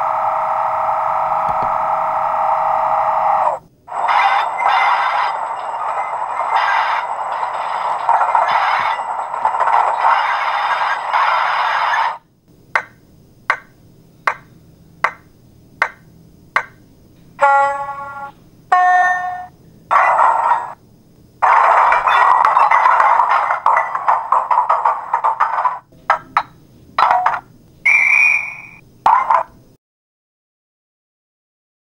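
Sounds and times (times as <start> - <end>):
primer hum: 0.0 - 29.0.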